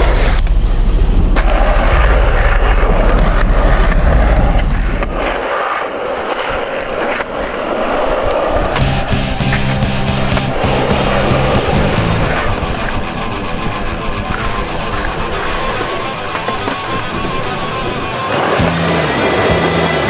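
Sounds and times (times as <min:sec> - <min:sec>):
skateboard wheels rolling on concrete: 0:00.0 - 0:20.0.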